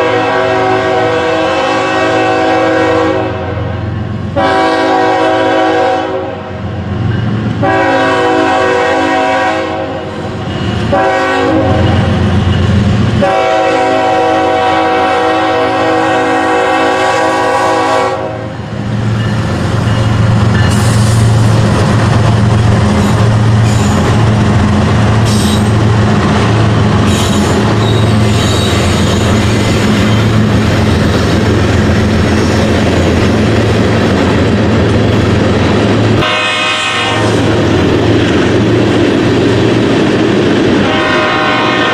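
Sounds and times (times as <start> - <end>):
locomotive horn blasts: 0.0 - 6.5, 7.6 - 10.1, 10.9 - 12.1, 13.2 - 18.6, 36.2 - 37.5, 40.8 - 41.9
diesel locomotive rumble: 0.0 - 41.9
wheel squeals: 27.0 - 30.4.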